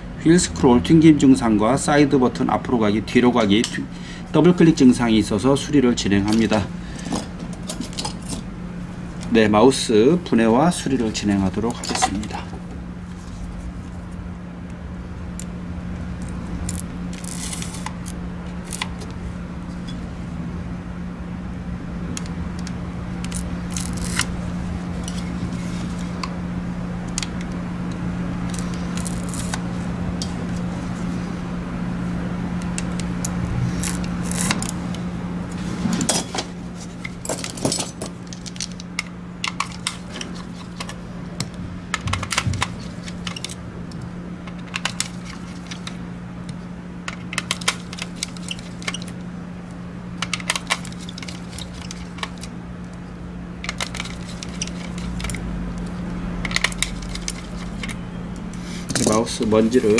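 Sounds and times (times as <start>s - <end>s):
steady low hum: 0.0s - 59.9s
tools clicking and scraping plastic: 36.8s - 46.0s, 47.0s - 49.2s, 50.2s - 52.5s, 53.6s - 58.0s.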